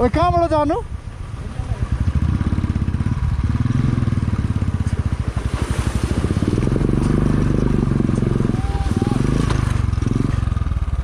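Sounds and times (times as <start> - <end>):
motorcycle engine chugging: 0.0 - 11.0
water splashing: 4.2 - 10.1.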